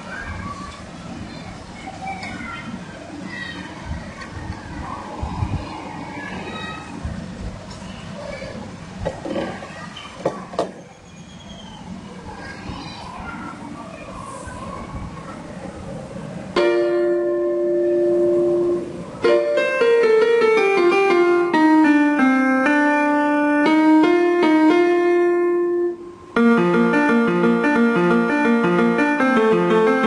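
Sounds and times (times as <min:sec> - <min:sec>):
electronic piano playing: 0:16.5 - 0:30.0.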